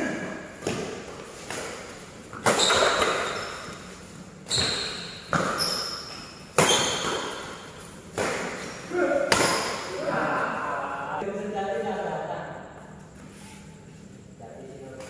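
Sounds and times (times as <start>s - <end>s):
rackets hitting shuttlecock: 0.6s - 9.9s.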